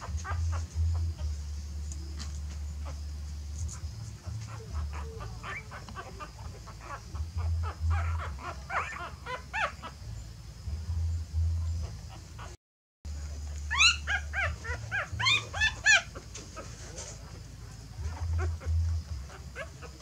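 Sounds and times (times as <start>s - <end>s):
puppies whimpering: 0.0s - 3.0s, 3.6s - 10.0s, 13.5s - 20.0s
low steady hum: 0.0s - 20.0s
soft scuffling on a mat: 16.2s - 18.3s.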